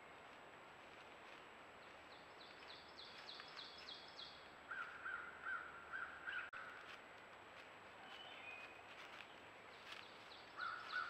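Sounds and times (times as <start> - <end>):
songbirds singing: 1.8 - 6.8, 8.0 - 11.0.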